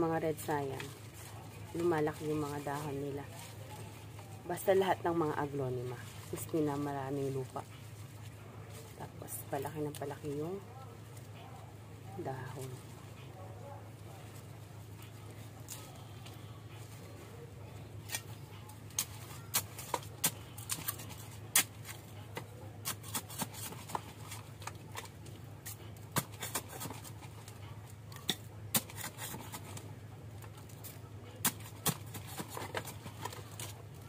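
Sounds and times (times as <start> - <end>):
leaves and stems rustling: 0.0 - 11.4
steady low hum: 0.0 - 34.0.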